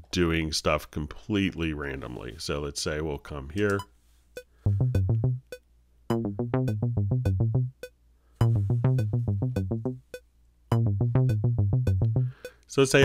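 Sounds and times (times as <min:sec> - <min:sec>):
drum machine ticks: 0:03.7 - 0:13.0
monophonic synth line: 0:04.7 - 0:05.5, 0:06.1 - 0:07.8, 0:08.4 - 0:10.0, 0:10.7 - 0:12.4.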